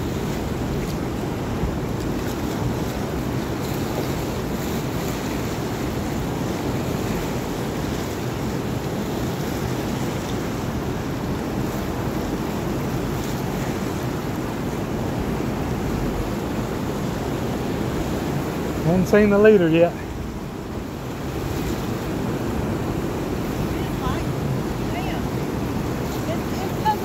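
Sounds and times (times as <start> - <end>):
turbulent river current rushing: 0.0 - 27.0
wind buffeting microphone: 20.0 - 27.0.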